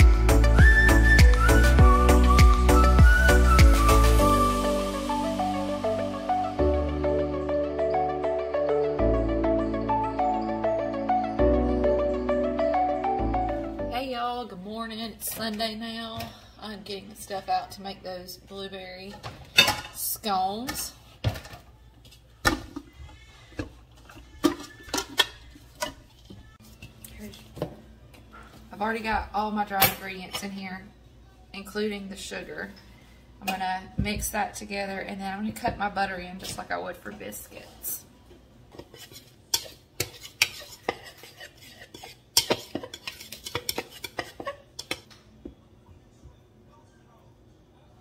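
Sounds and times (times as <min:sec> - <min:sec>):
mixing bowls knocking and clinking: 0:19.1 - 0:27.8, 0:38.7 - 0:45.6
metal utensil scraping a bowl: 0:38.7 - 0:45.1.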